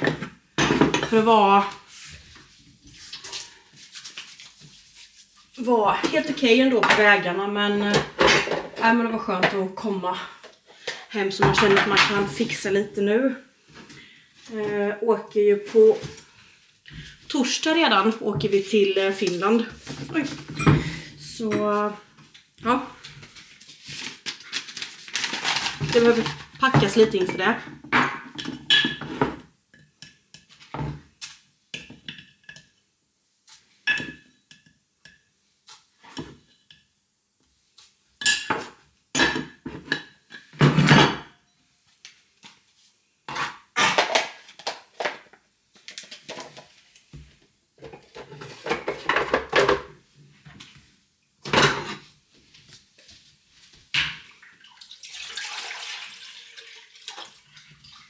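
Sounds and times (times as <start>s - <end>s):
kitchenware clinking on countertop: 38.2s - 41.3s
water pouring from carafe: 54.4s - 58.0s.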